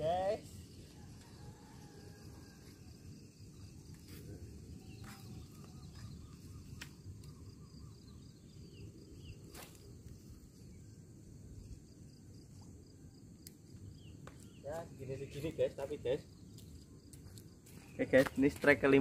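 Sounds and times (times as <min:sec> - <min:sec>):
faint high insect drone: 0:00.0 - 0:19.0
small bird chirps: 0:03.5 - 0:10.9.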